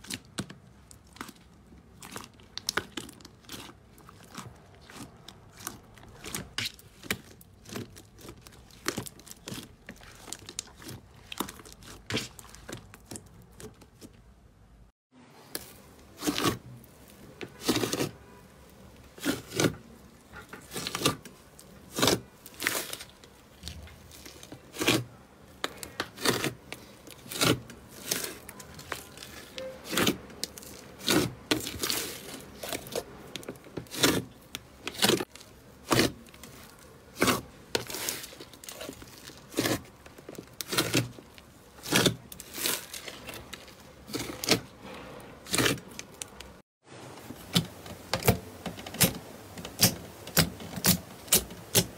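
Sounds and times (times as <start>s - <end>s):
slime squelching and popping: 0.0s - 14.2s.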